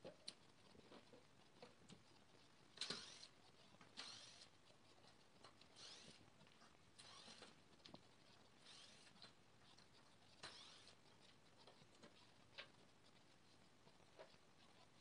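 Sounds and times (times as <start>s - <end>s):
handling ticks and scrapes: 0.0s - 15.0s
cordless drill driving screws: 2.8s - 3.3s, 4.0s - 4.4s, 5.8s - 6.2s, 7.0s - 7.5s, 8.7s - 9.1s, 10.4s - 10.9s.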